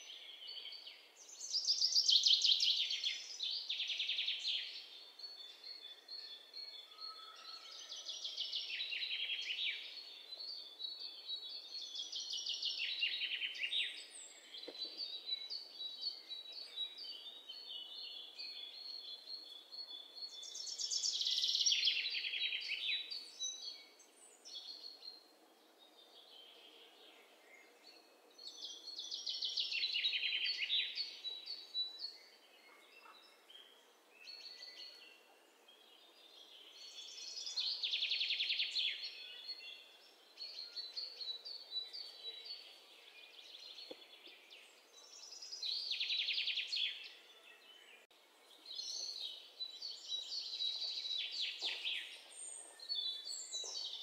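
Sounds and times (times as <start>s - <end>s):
birds chirping: 25.9s - 54.0s.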